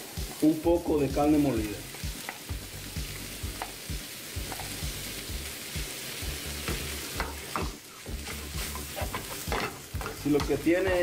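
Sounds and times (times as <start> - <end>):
meat and vegetables sizzling: 0.0 - 11.0
wooden spoon scraping a pan: 6.6 - 10.6.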